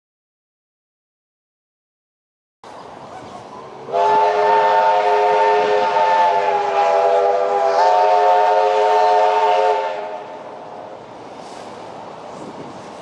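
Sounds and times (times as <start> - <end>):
steam locomotive chime whistle: 3.8 - 10.4.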